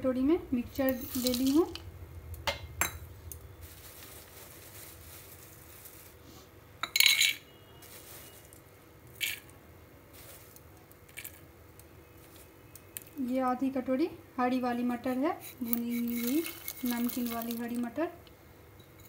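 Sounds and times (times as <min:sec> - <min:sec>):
faint steady hum: 0:00.0 - 0:19.0
steel bowls clinking: 0:00.9 - 0:01.8, 0:15.4 - 0:17.8.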